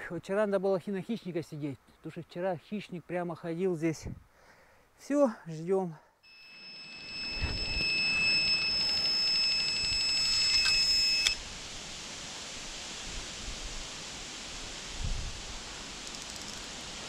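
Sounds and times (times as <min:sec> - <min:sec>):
bite alarm beeping: 0:06.3 - 0:11.4.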